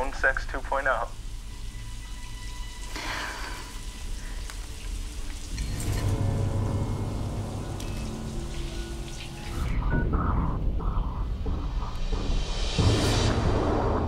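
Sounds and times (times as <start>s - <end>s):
shower water spraying: 1.2s - 9.8s
low rumble: 5.5s - 14.0s.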